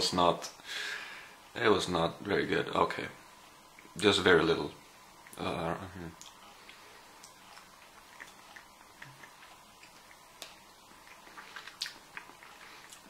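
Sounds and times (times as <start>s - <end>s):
small mouth clicks: 6.1s - 13.0s.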